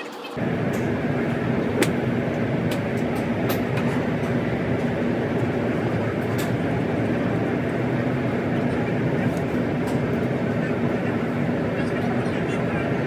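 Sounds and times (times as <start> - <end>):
golf clubs striking balls: 0.4 - 7.4
low rumbling background noise: 0.4 - 13.0.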